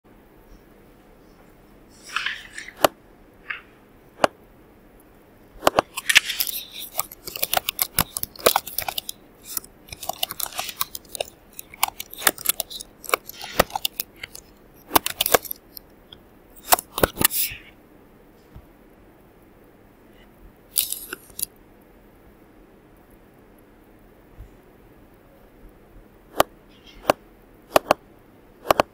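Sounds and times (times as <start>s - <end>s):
typing on computer keyboard: 5.6s - 15.8s.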